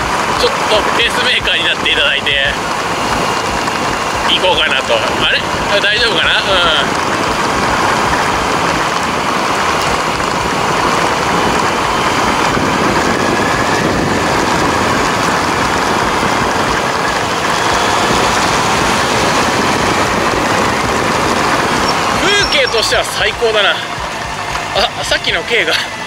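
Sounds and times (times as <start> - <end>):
wind noise on microphone: 0.0 - 25.1
motorcycle engine running: 0.0 - 26.0.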